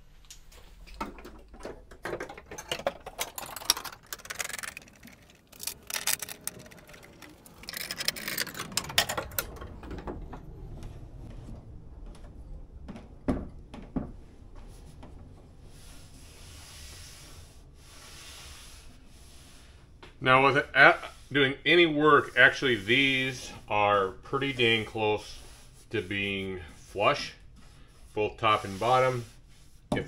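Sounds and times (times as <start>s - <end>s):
metal clamps clicking and rattling: 1.0s - 9.6s
hands rubbing over boards: 22.1s - 30.0s.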